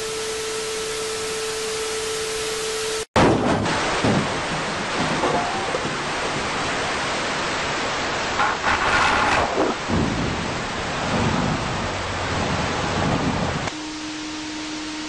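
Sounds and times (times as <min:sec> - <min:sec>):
dense electronic rushing noise: 0:07.9 - 0:13.7.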